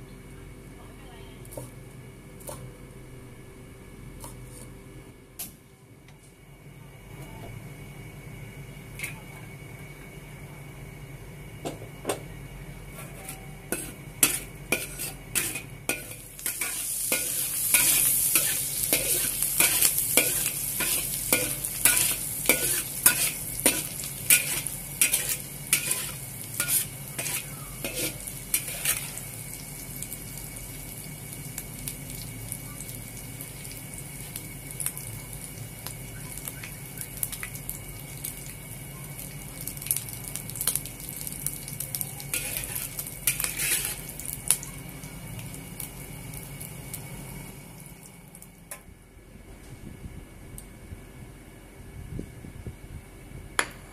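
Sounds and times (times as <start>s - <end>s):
metal spatula scraping a wok: 12.9s - 29.2s, 42.3s - 44.1s
food sizzling in hot oil: 13.6s - 48.7s.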